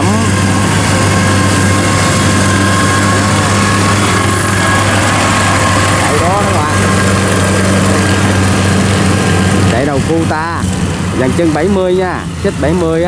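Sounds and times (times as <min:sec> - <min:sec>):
tracked vehicle engine humming: 0:00.0 - 0:13.0.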